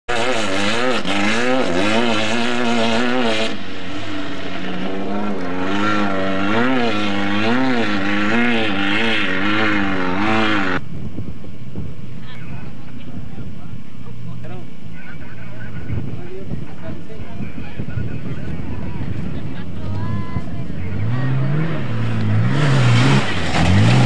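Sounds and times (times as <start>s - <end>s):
engine revving hard: 0.1s - 10.8s, 20.6s - 24.0s.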